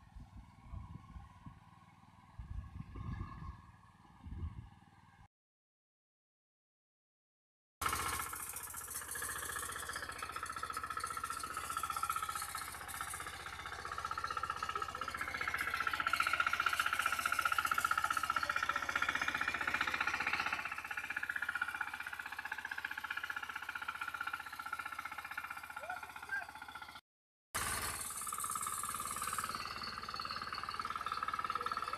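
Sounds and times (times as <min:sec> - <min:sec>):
tines churning dry soil: 0:07.8 - 0:26.4, 0:27.6 - 0:31.9
power weeder engine running: 0:07.8 - 0:27.0, 0:27.6 - 0:31.9.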